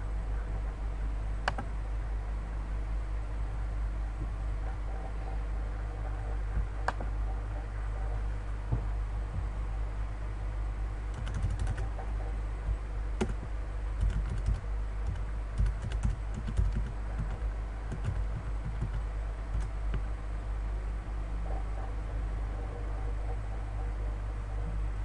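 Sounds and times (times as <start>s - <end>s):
steady low hum: 0.0s - 25.0s
computer keyboard typing: 11.1s - 12.0s, 13.2s - 19.7s.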